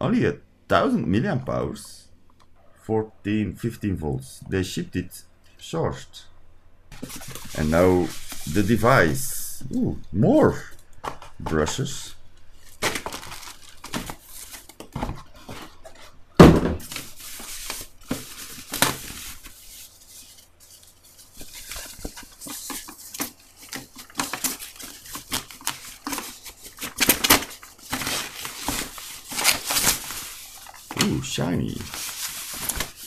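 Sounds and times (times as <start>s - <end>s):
plastic bag rustling: 6.9s - 9.7s, 10.4s - 33.0s
cardboard packaging knocks: 16.4s - 17.0s.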